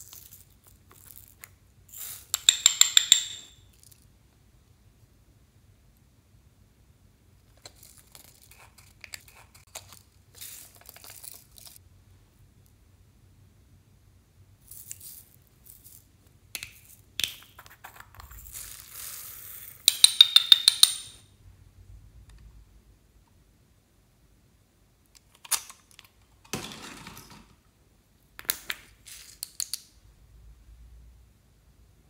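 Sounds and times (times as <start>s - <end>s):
rapid rattling of beads: 14.6s - 16.2s.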